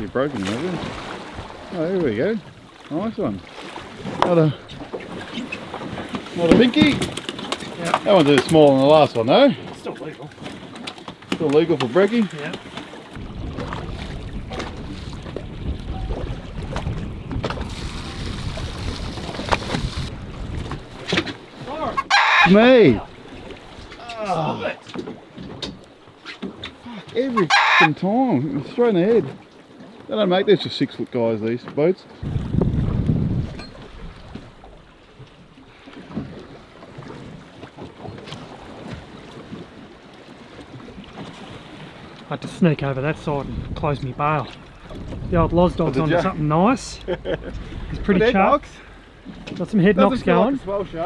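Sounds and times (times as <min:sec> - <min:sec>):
wind and water rumble: 0:00.0 - 0:51.0
wind buffeting microphone: 0:13.1 - 0:24.3, 0:32.2 - 0:35.5, 0:42.8 - 0:51.0.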